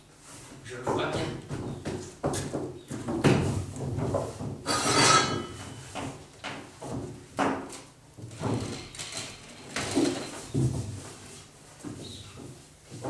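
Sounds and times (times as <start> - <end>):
wooden knocks and rubbing: 0.8 - 13.0.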